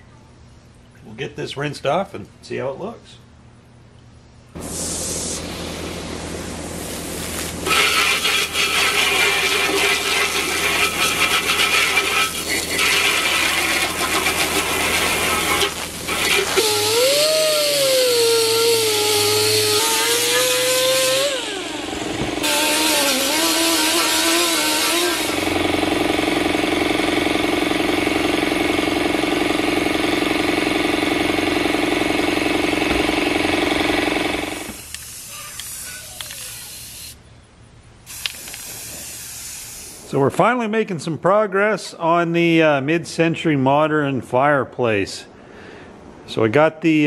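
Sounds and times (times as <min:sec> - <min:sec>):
pressure washer spraying: 0:04.6 - 0:37.2, 0:38.1 - 0:40.1
wavering motor tone: 0:07.6 - 0:25.8.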